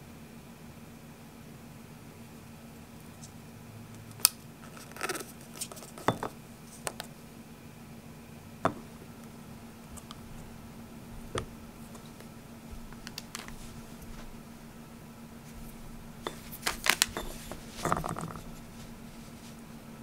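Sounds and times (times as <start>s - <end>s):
faint low hum: 0.0s - 20.0s
spoon clicking and scraping cup: 15.7s - 18.4s.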